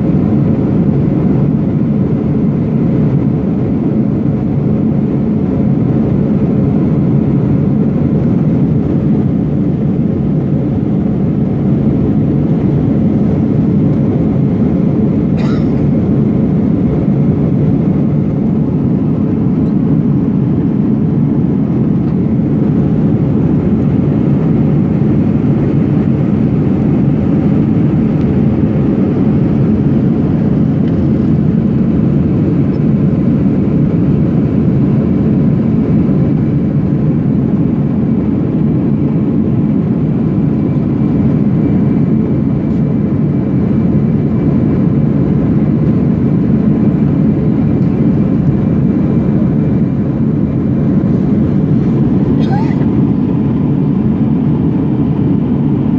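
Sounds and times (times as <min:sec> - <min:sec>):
aircraft cabin engine and airflow roar: 0:00.0 - 0:55.9.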